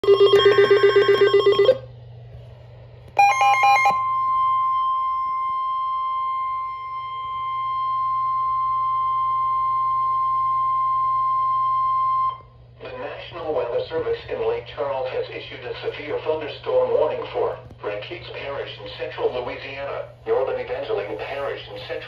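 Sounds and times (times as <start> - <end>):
steady warning alarm tone: 0.0 - 1.8, 3.2 - 12.5.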